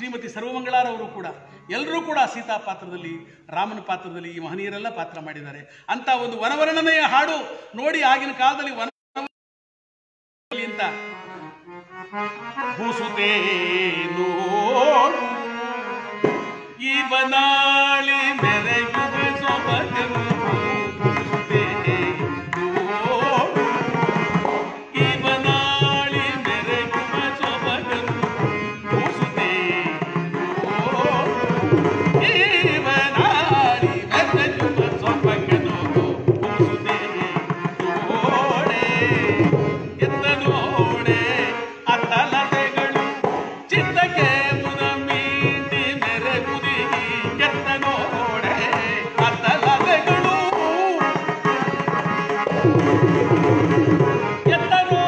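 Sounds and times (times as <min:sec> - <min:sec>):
harmonium: 0:00.0 - 0:05.3, 0:10.5 - 0:55.0
tabla beat: 0:16.2 - 0:16.7, 0:18.1 - 0:55.0
person singing: 0:24.8 - 0:55.0.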